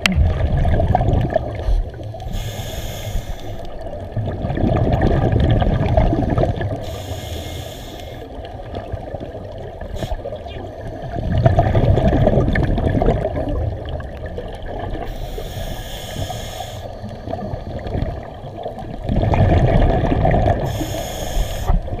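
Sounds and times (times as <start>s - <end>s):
exhaust bubbles on exhale: 0.0s - 8.2s, 9.8s - 22.0s
regulator hiss on inhale: 1.6s - 3.8s, 6.8s - 8.4s, 9.9s - 10.3s, 15.0s - 17.4s, 20.6s - 22.0s.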